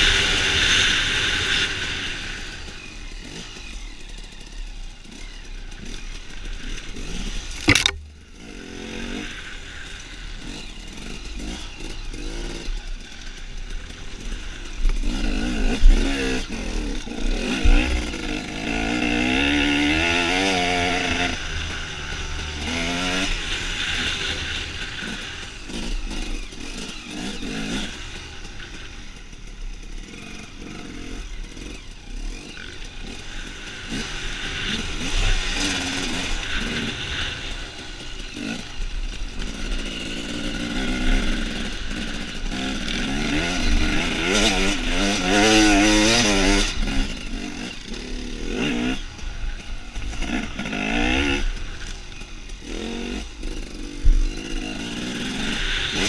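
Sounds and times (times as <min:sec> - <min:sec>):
dirt bike engine revving: 0:00.0 - 0:56.0
sharp knock: 0:07.6 - 0:08.1.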